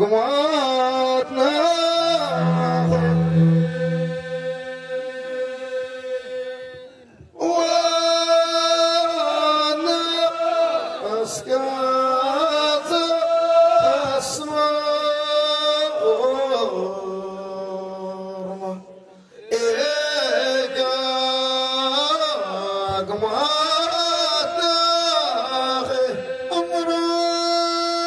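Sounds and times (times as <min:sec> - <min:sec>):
men chanting in unison: 0:07.4 - 0:18.6, 0:19.4 - 0:27.2.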